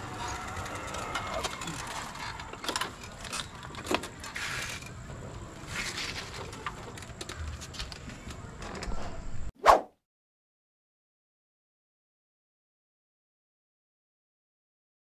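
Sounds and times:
bike rattling and clicking: 0.0 - 8.9.

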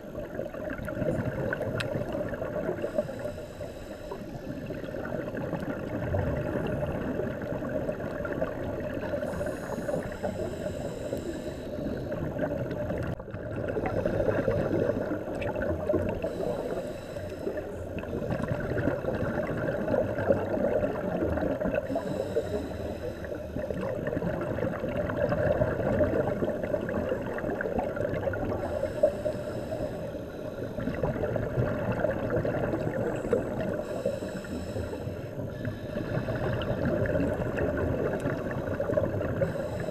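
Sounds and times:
muffled underwater rushing and bubbling: 0.0 - 39.9
regulator breathing hiss: 2.7 - 4.8, 9.2 - 12.3, 16.2 - 18.0, 21.9 - 23.8, 28.5 - 30.9, 33.1 - 36.8, 39.4 - 39.9.

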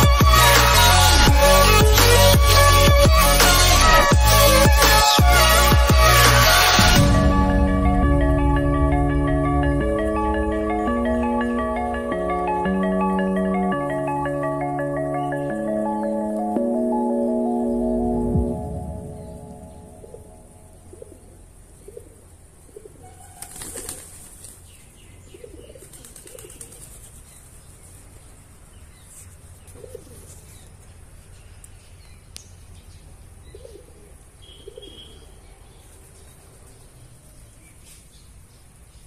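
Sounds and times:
wings flapping: 23.3 - 24.6, 25.8 - 27.2.

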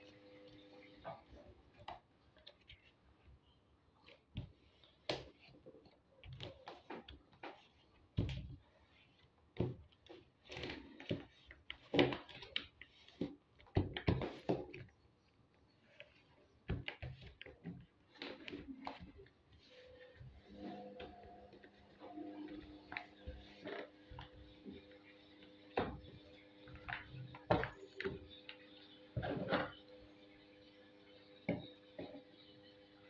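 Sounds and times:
paper rustling and sliding: 18.2 - 25.5.

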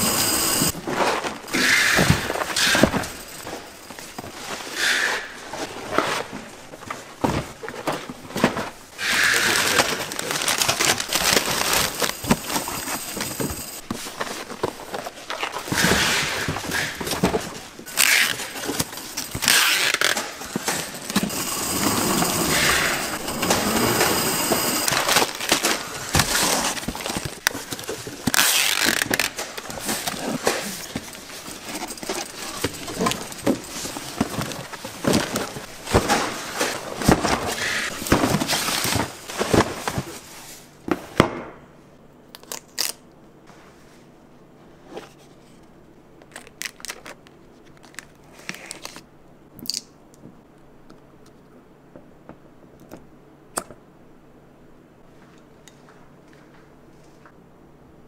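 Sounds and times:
hard objects clattering and clinking: 9.4 - 40.0.

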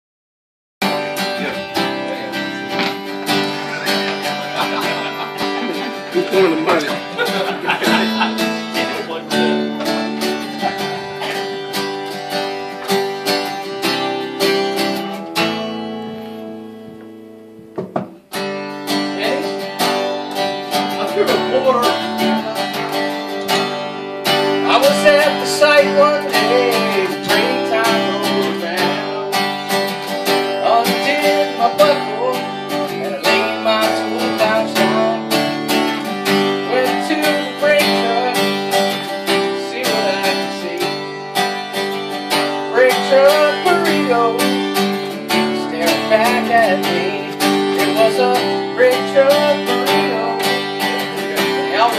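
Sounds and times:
acoustic guitar strumming: 0.8 - 51.9
person singing: 0.9 - 14.3, 20.8 - 23.9, 24.5 - 29.5, 30.5 - 41.1, 42.6 - 51.9.

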